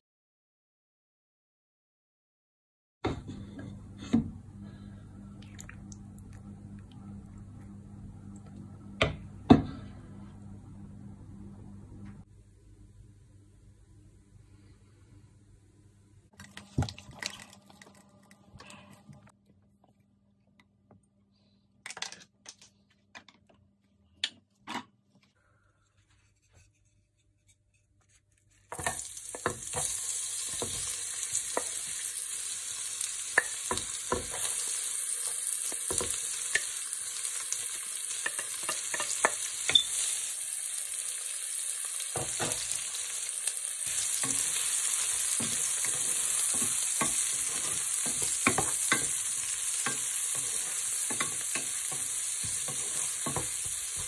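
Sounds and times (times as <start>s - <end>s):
onions sizzling in oil: 28.7s - 54.0s
wooden spatula scraping pan: 45.4s - 49.1s.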